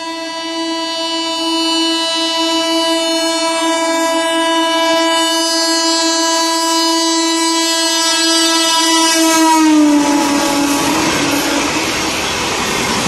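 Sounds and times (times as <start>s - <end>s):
train horn blast: 0.0s - 12.7s
train coaches rushing by: 8.8s - 13.0s.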